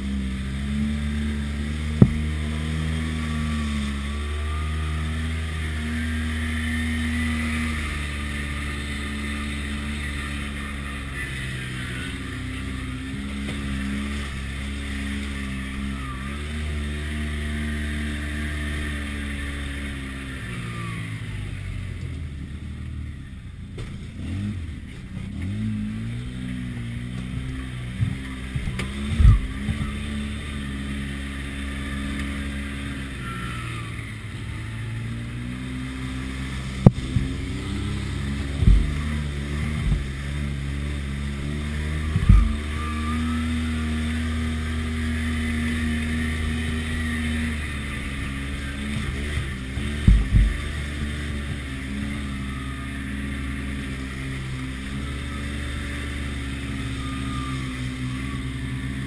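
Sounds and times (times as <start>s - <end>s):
utility vehicle engine running: 0.0s - 59.0s
dull thumps over rocks: 2.0s - 2.3s, 38.6s - 39.1s, 50.0s - 50.6s.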